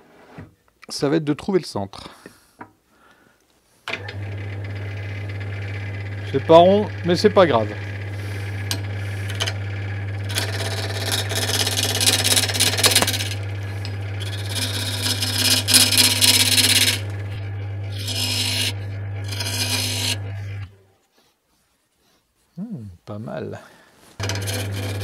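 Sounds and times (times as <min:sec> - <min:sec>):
lathe motor hum: 0:04.0 - 0:20.7, 0:24.2 - 0:25.0
lathe tool scraping wood: 0:04.1 - 0:20.7, 0:24.2 - 0:25.0.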